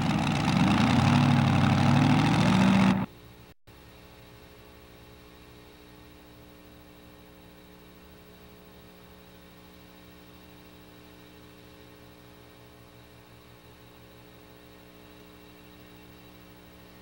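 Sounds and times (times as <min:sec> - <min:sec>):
steady electrical hum: 0:03.0 - 0:17.0.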